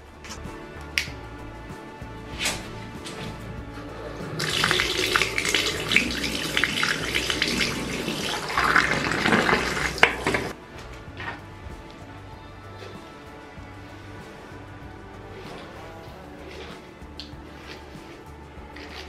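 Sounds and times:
background music: 0.0s - 19.0s
shower water spraying into bathtub: 4.3s - 10.6s.

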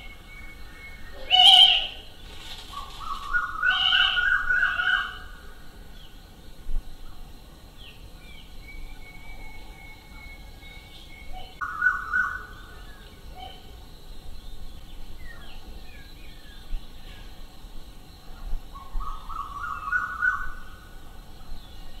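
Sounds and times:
loud animal call: 1.2s - 2.1s, 3.6s - 5.2s.

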